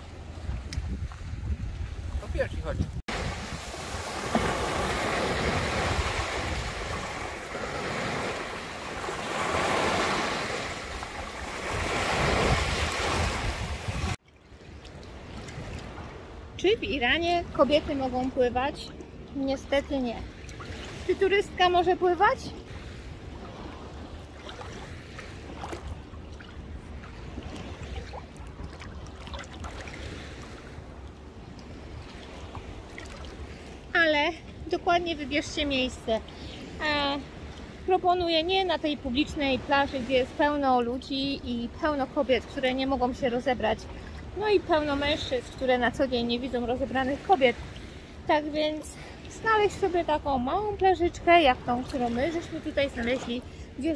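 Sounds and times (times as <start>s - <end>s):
small waves washing over sand: 0.0s - 53.9s
water lapping around wading feet: 3.1s - 16.6s, 17.6s - 34.6s, 41.8s - 53.9s.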